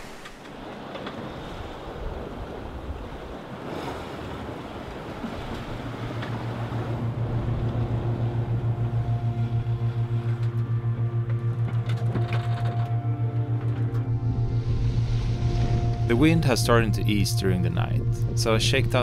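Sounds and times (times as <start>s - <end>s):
water rushing past hull: 0.0s - 13.2s
low rapidly pulsing hum: 5.7s - 19.0s.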